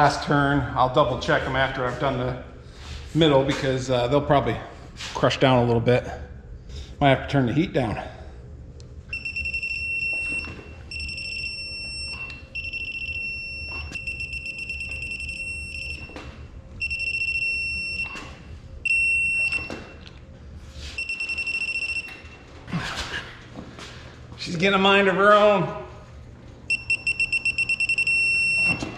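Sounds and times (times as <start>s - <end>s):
torque wrench beeping: 9.1s - 16.2s, 16.8s - 18.2s, 21.0s - 22.3s, 26.7s - 28.9s.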